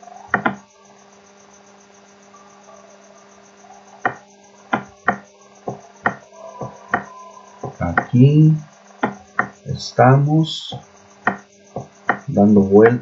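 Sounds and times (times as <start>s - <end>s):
low electrical hum: 0.0s - 13.0s
computer mouse clicks: 0.3s - 0.6s.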